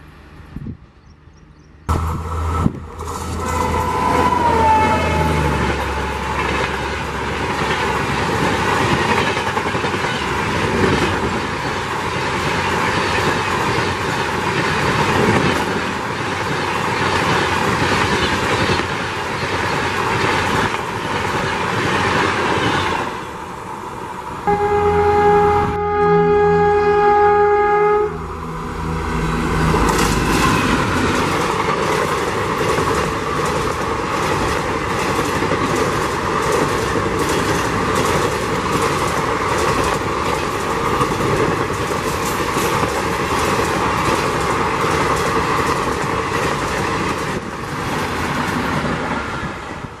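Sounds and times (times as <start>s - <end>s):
locomotive horn: 1.9s - 6.3s, 24.4s - 29.9s
train wheels clattering: 29.6s - 48.9s.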